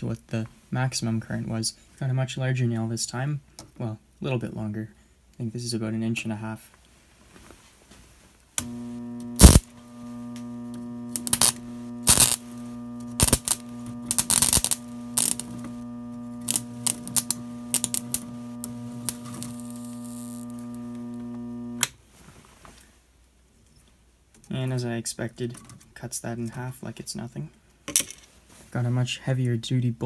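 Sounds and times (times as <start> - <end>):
transformer humming: 8.6 - 21.8
nail arcing and sparking: 8.6 - 21.9.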